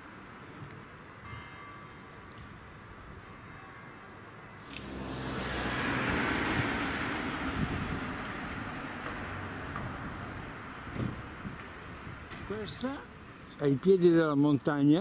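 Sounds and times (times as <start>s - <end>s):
car passing by: 4.6s - 10.4s.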